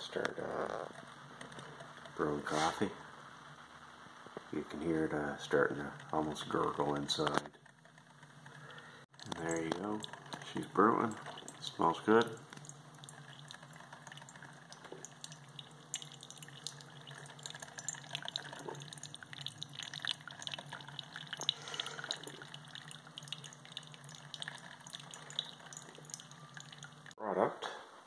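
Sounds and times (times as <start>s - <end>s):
coffee maker gurgling: 0.0s - 3.0s, 4.4s - 27.2s
coffee dripping into a mug: 5.2s - 27.2s.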